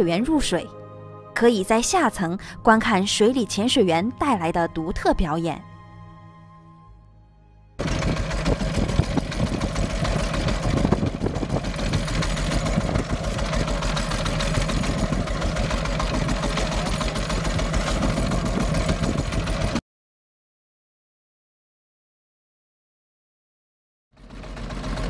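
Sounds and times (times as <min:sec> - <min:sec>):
boat engine chugging: 0:07.8 - 0:19.8, 0:24.2 - 0:25.0.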